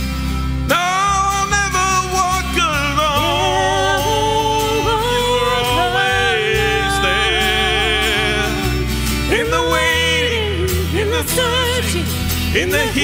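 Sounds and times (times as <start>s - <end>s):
acoustic guitar: 0.0s - 13.0s
electric guitar: 0.0s - 13.0s
man and woman singing: 0.7s - 13.0s
drums: 8.1s - 13.0s.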